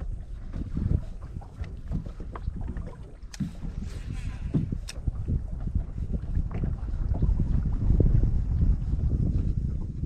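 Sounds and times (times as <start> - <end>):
gusty wind on microphone: 0.0 - 10.0
waves slapping boat hull: 0.0 - 10.0.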